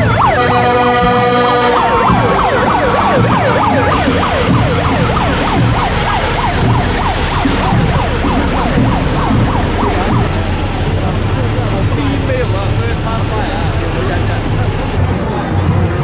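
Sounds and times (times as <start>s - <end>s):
electronic siren yelping: 0.0s - 15.0s
horn blast: 0.0s - 15.0s
faint high whine: 5.1s - 15.0s.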